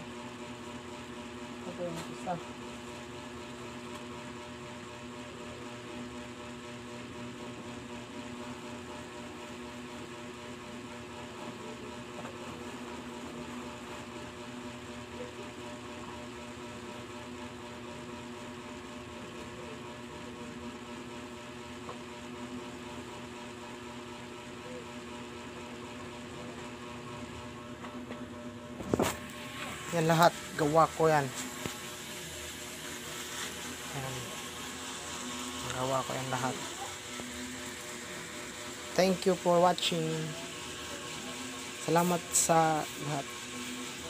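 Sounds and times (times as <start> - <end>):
motor humming: 25.7 - 44.0.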